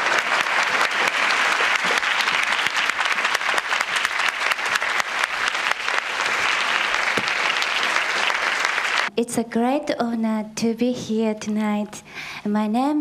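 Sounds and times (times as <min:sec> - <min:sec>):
audience applauding: 0:00.0 - 0:09.1.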